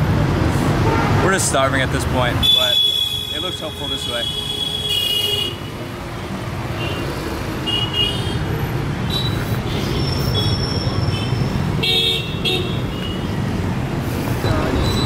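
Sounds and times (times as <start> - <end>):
street traffic: 0.0 - 15.0
vehicle horn toots: 2.4 - 5.7.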